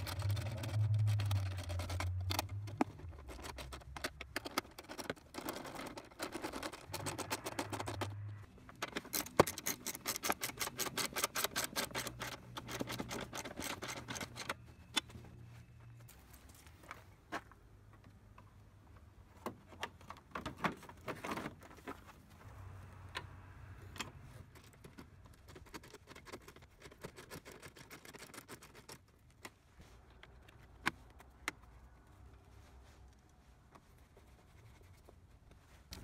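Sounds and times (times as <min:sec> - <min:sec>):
hand tools clicking and clinking: 0:00.0 - 0:15.2.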